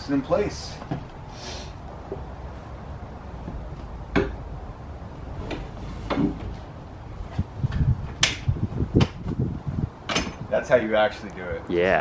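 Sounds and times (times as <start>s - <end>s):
sharp knocks: 4.1s - 4.4s
folding metal frame clunking: 10.0s - 10.5s.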